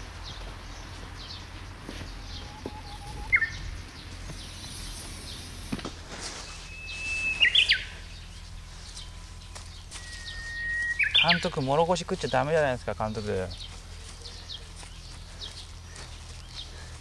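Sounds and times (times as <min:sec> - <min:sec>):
songbird whistling: 0:02.2 - 0:03.8, 0:06.4 - 0:11.7
sharp bird chirp: 0:06.4 - 0:08.5, 0:09.4 - 0:11.6.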